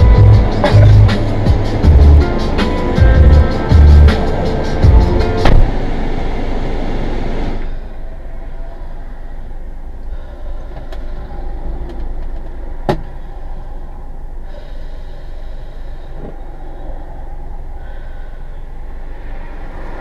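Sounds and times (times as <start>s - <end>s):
car engine running: 0.0s - 8.1s
road traffic passing: 0.0s - 20.0s.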